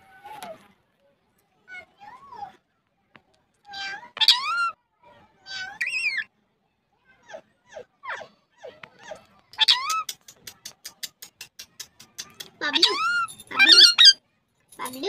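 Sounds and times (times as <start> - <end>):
fast even series of clicks: 9.5 - 12.6.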